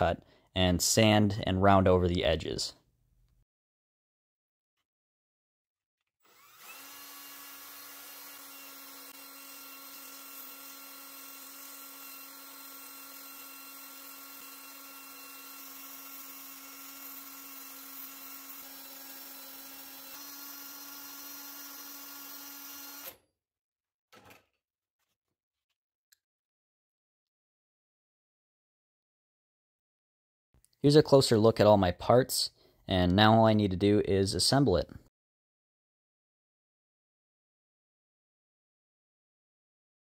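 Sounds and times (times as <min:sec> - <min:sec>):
drill whining: 0:06.2 - 0:23.2.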